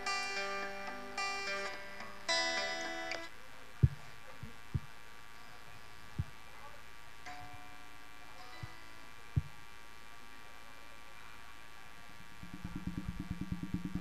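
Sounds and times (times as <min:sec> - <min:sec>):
faint guitar notes: 0:00.0 - 0:03.3
microphone thumps: 0:03.8 - 0:05.0, 0:09.4 - 0:09.6, 0:12.4 - 0:14.0
pa system humming: 0:12.2 - 0:14.0.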